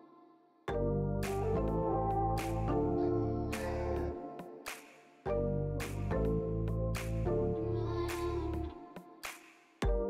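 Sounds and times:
gentle instrumental music: 0:00.7 - 0:04.7, 0:05.3 - 0:08.9.

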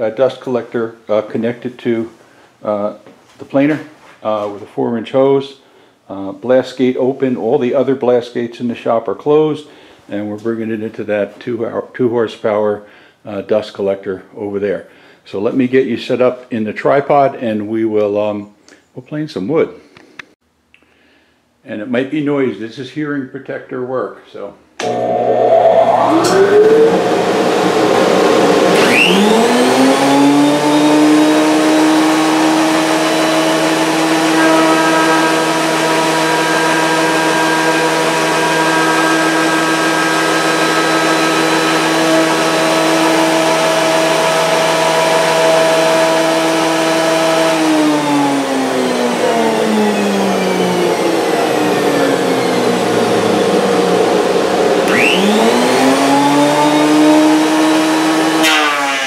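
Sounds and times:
dust collector running: 0:24.8 - 0:59.0
thickness planer running: 0:24.8 - 0:59.0.

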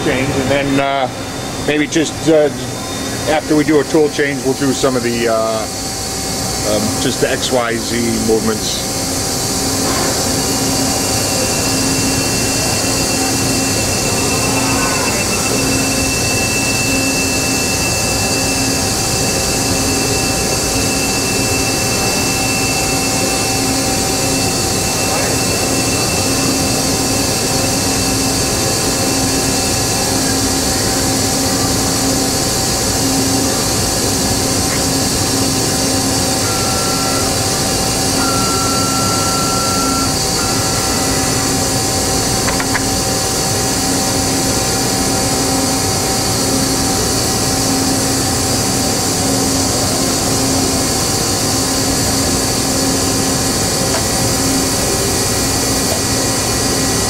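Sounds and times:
industrial machinery hum and hiss: 0:00.0 - 0:57.0
low pulsing drone: 0:10.4 - 0:25.9
short high tone: 0:12.2 - 0:17.7.

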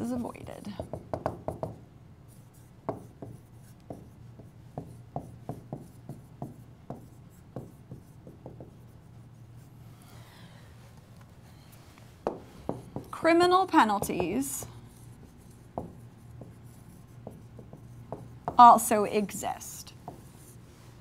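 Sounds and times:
stylus tapping on a tablet: 0:00.8 - 0:01.8, 0:02.9 - 0:08.9, 0:12.2 - 0:13.2, 0:13.8 - 0:14.5, 0:15.7 - 0:18.7.

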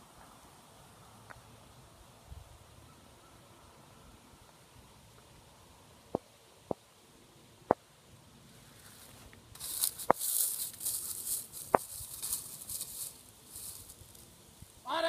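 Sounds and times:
gusty rustling hiss: 0:03.9 - 0:15.0.

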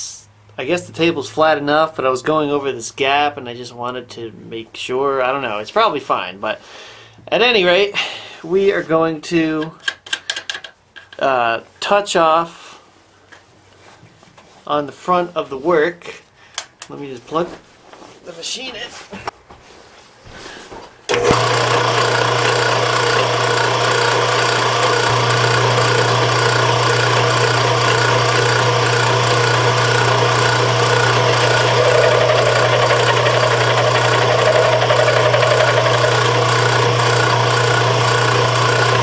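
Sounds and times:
milling machine humming and whirring: 0:21.1 - 0:39.0.

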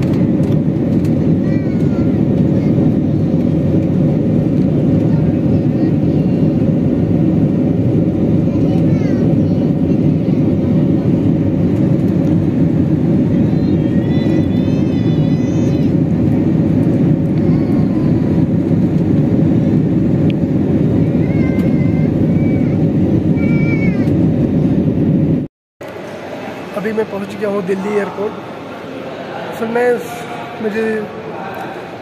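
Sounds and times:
jet engine cabin rumble: 0:00.0 - 0:32.0.

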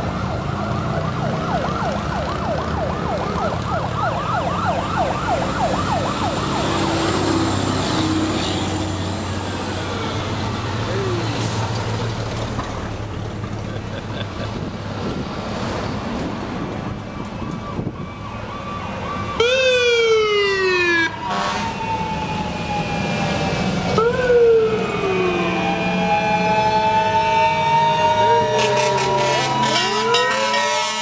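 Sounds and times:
sharp falling siren wails: 0:00.0 - 0:08.9, 0:16.8 - 0:31.0
fire truck engines rumbling: 0:00.0 - 0:31.0
rising siren wind-up: 0:16.9 - 0:30.9.

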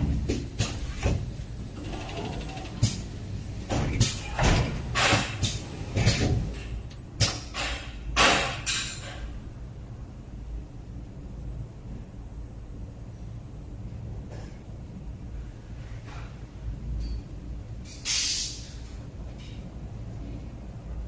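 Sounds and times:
low machine rumble: 0:00.0 - 0:08.2
pneumatic cylinders clacking: 0:00.0 - 0:09.3, 0:17.9 - 0:19.6
air hissing: 0:17.9 - 0:18.8.

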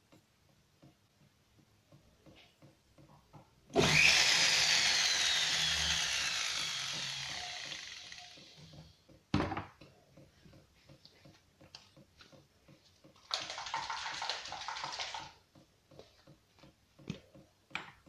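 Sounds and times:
rotary tool whine: 0:03.7 - 0:08.9.

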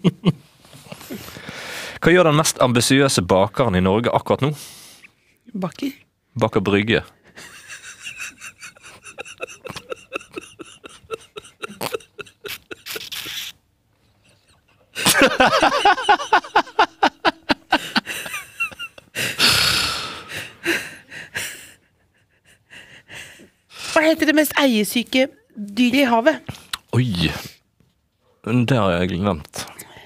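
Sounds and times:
man laughing: 0:07.4 - 0:13.5, 0:14.2 - 0:19.5
gasps: 0:11.4 - 0:13.6.

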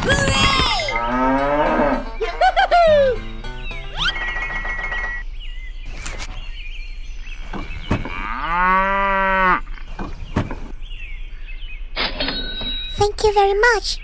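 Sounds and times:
cow mooing: 0:00.9 - 0:02.1, 0:08.1 - 0:09.8.

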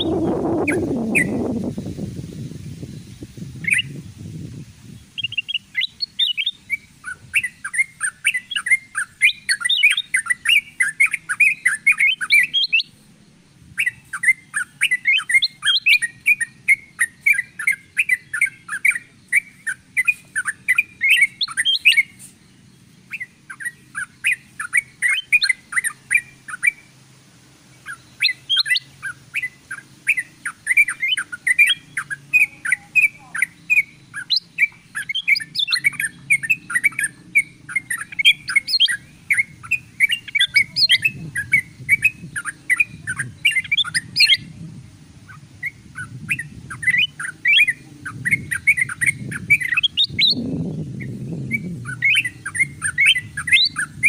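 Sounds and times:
bulbuls chirping and twittering: 0:00.0 - 0:54.0
sharp high bird ticks: 0:05.2 - 0:13.0.

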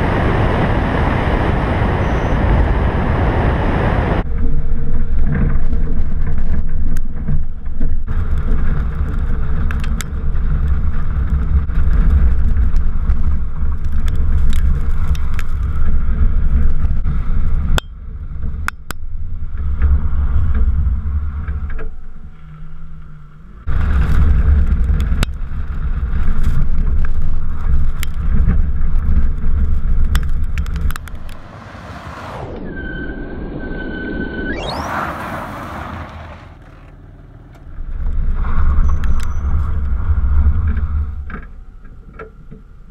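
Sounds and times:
wind buffeting microphone: 0:00.0 - 0:21.7
tyres on gravel: 0:23.6 - 0:33.5, 0:34.1 - 0:41.6.

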